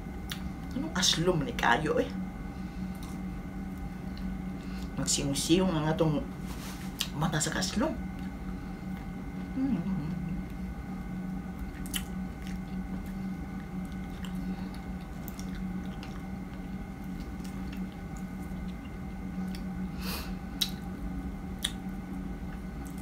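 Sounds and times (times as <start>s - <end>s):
low hum: 0.0s - 23.0s
chewing with wet mouth smacks: 11.4s - 19.9s, 20.5s - 23.0s.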